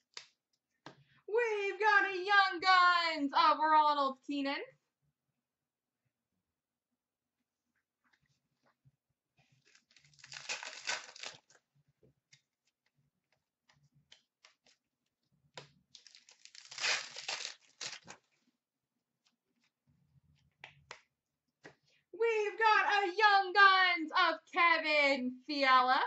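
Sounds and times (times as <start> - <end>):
card pack wrappers tearing and crinkling: 9.7 - 11.6, 16.0 - 18.2.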